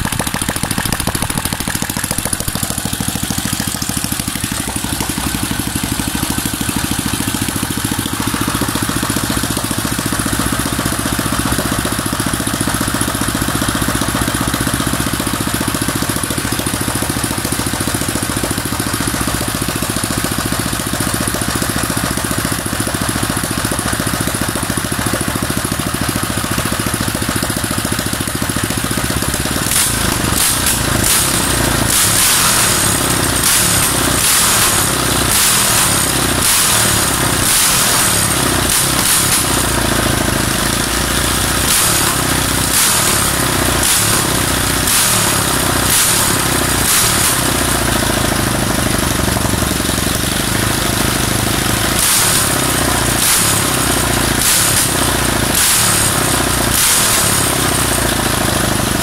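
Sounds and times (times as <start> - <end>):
sharp knocks: 0.0 - 5.4
small engine running steadily: 0.0 - 59.0.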